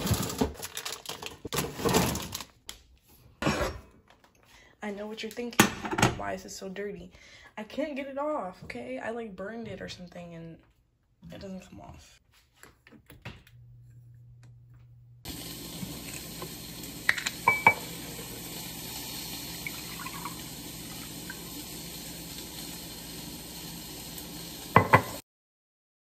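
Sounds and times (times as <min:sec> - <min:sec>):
liquid pouring into glass: 0:19.6 - 0:21.4.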